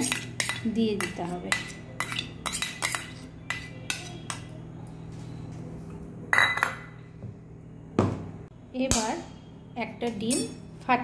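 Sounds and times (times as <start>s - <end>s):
spoon clinking against metal bowl: 0.0s - 4.6s, 10.1s - 10.7s.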